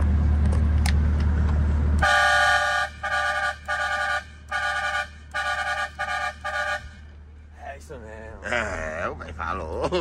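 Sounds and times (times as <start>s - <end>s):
low engine hum: 0.0s - 10.0s
truck horn chord blasts: 2.0s - 7.0s.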